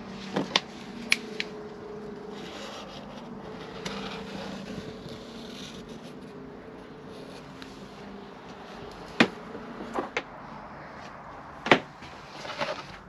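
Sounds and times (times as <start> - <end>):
marker scratching: 2.4 - 6.3.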